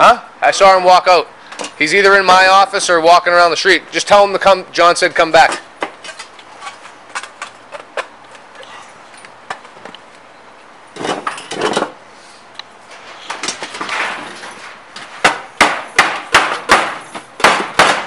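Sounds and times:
tool striking copper: 0:15.2 - 0:18.0.

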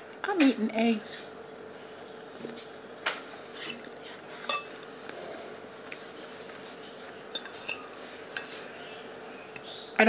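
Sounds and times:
fork clinking on plate: 0:04.5 - 0:04.8, 0:07.3 - 0:08.6.

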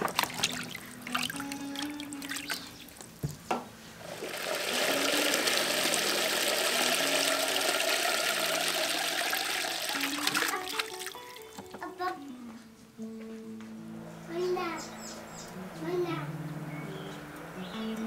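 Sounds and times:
water pouring into plastic tub: 0:00.0 - 0:03.2, 0:04.0 - 0:11.7.

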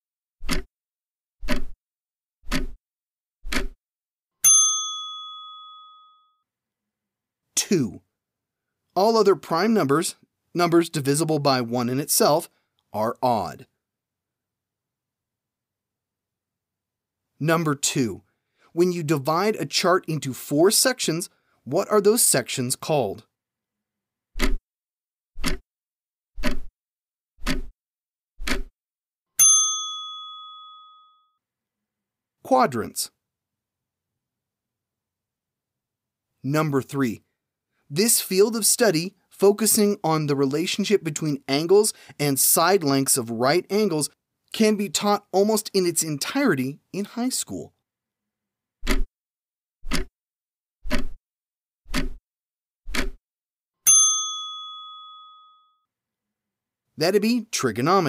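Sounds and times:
clock ticking: 0:00.4 - 0:00.7, 0:01.4 - 0:01.8, 0:02.5 - 0:02.8, 0:03.5 - 0:03.8, 0:24.4 - 0:24.6, 0:25.4 - 0:25.6, 0:26.4 - 0:26.7, 0:27.4 - 0:27.7, 0:28.4 - 0:28.7, 0:48.8 - 0:49.1, 0:49.8 - 0:50.1, 0:50.9 - 0:51.2, 0:51.9 - 0:52.2, 0:52.9 - 0:53.2
bell ding: 0:04.4 - 0:06.4, 0:29.4 - 0:31.4, 0:53.9 - 0:55.8.

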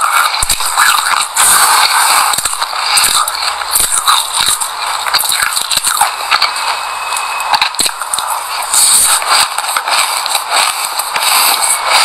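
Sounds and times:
seeds being chewed crunchily: 0:00.0 - 0:06.5.

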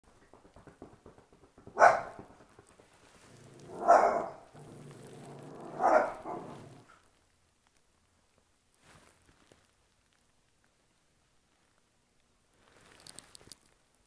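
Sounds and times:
dog barking: 0:01.8 - 0:02.2, 0:03.7 - 0:04.5, 0:05.6 - 0:06.8
dog growling: 0:03.3 - 0:06.9.

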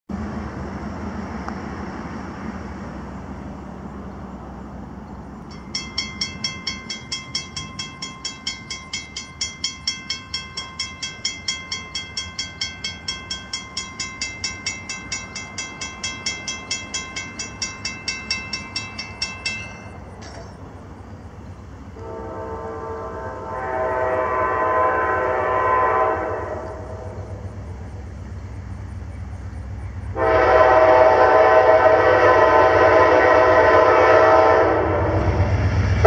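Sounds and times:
railroad crossing bell ringing: 0:05.4 - 0:22.2.

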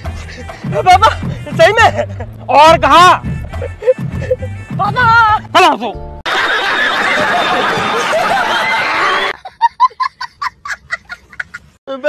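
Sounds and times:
crowd laughing loudly: 0:06.3 - 0:11.7.

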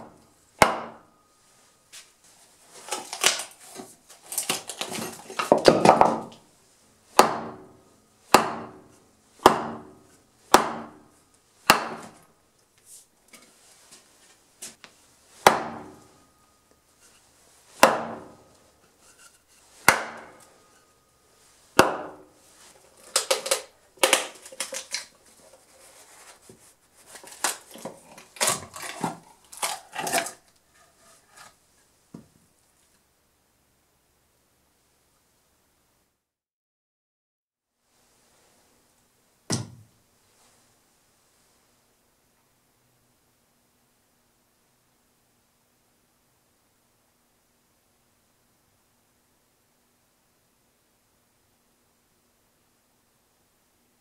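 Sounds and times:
wood cracking and creaking: 0:02.8 - 0:05.8, 0:27.2 - 0:31.5
froe struck into log: 0:07.2 - 0:07.6, 0:08.4 - 0:08.8, 0:09.4 - 0:09.9, 0:10.5 - 0:11.0, 0:11.7 - 0:12.2, 0:15.4 - 0:16.0, 0:17.8 - 0:18.3, 0:19.9 - 0:20.4, 0:21.8 - 0:22.2.

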